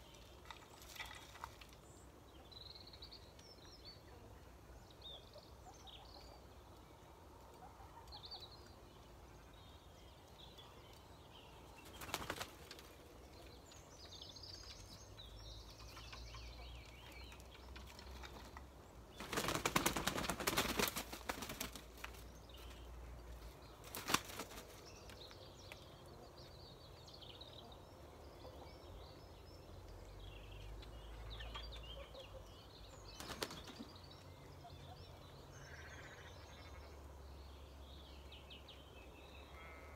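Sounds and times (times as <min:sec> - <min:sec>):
faint birds chirping: 0:00.0 - 0:39.9
chickens flapping wings: 0:11.9 - 0:12.9, 0:19.2 - 0:22.2, 0:23.8 - 0:24.8, 0:33.2 - 0:33.8.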